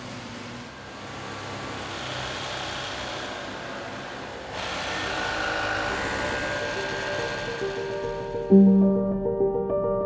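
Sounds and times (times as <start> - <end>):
sewing machine running: 1.5 - 8.5.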